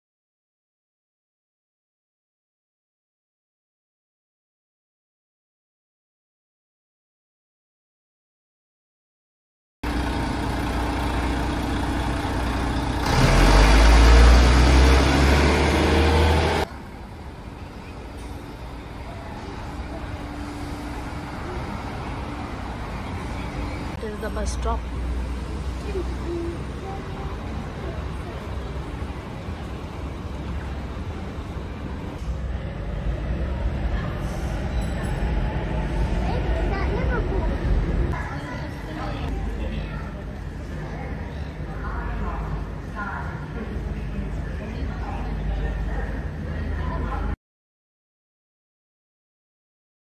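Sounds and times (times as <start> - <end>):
bus engine rumble: 9.8 - 47.4
street traffic noise: 9.8 - 47.4.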